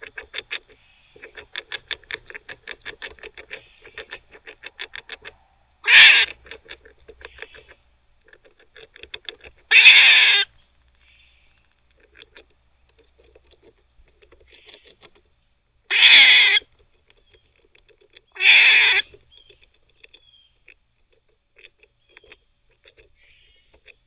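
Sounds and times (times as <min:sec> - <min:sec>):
teeth gnawing clicks: 0:00.0 - 0:05.4
squirrel barking: 0:05.8 - 0:06.6, 0:07.2 - 0:07.8, 0:09.7 - 0:10.5, 0:15.9 - 0:16.6, 0:18.3 - 0:19.6.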